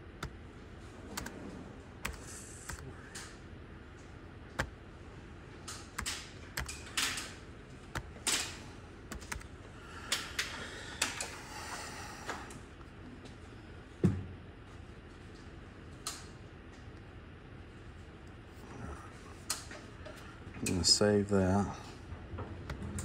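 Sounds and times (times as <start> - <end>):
typing on computer keyboard: 5.7 - 7.3, 7.9 - 9.5.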